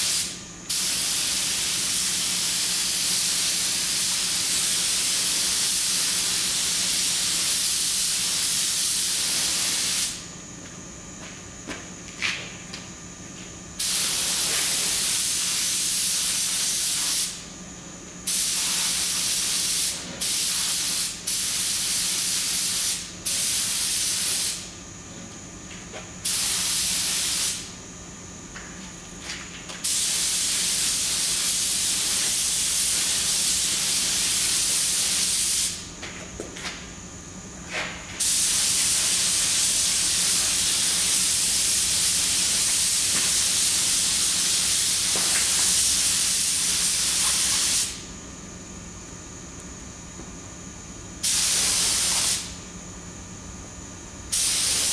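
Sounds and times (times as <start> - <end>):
paint spray gun hissing: 0.0 - 10.2, 13.8 - 17.4, 18.3 - 24.6, 26.2 - 27.7, 29.8 - 35.8, 38.2 - 48.0, 51.2 - 52.6, 54.3 - 54.9.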